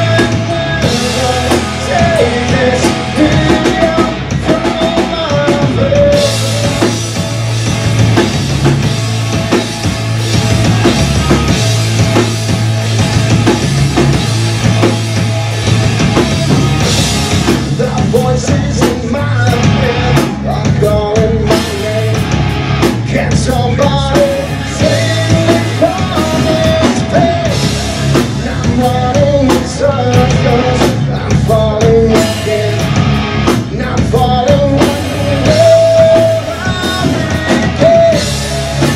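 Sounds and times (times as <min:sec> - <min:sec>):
drum kit: 0:00.0 - 0:38.9
electric bass: 0:00.0 - 0:38.9
electric guitar: 0:00.0 - 0:38.9.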